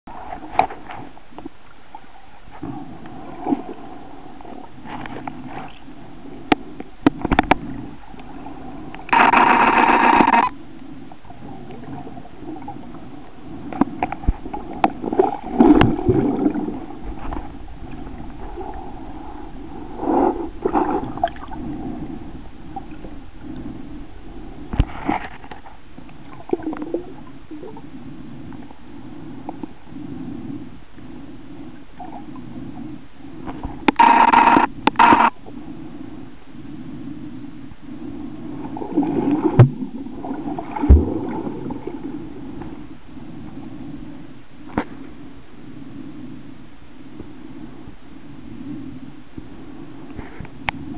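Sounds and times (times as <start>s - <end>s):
low underwater hum: 0.1s - 50.9s
underwater clicks and gurgles: 0.1s - 50.9s
loud buzzing tone: 9.1s - 10.6s, 33.9s - 35.4s.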